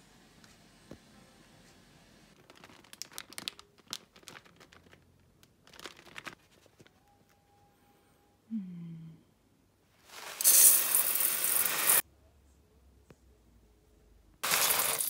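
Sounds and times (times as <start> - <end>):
plastic bag crinkling: 2.4 - 6.9.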